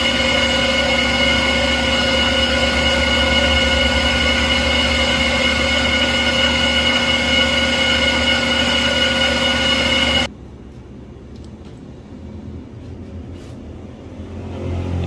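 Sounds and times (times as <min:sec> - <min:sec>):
metal lathe whining: 0:00.0 - 0:10.3.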